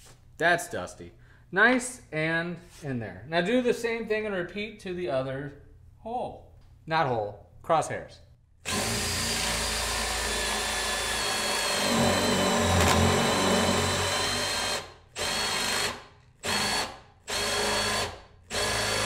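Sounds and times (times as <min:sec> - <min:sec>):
drill boring into wood: 0:08.6 - 0:19.0.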